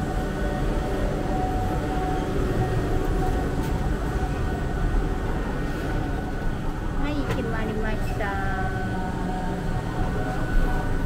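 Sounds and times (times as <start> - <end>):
faint whine: 0.0 - 11.0
gondola lift machinery rumbling: 0.0 - 11.0.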